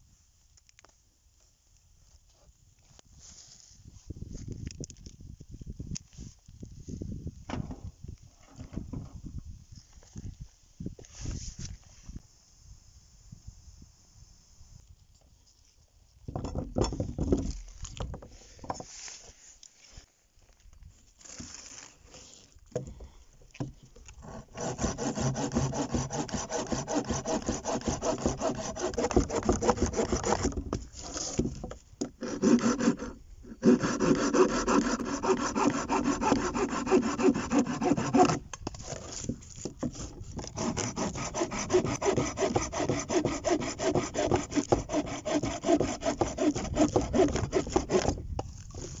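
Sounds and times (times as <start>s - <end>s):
hand saw cutting through branch: 24.2s - 39.3s, 39.9s - 48.2s.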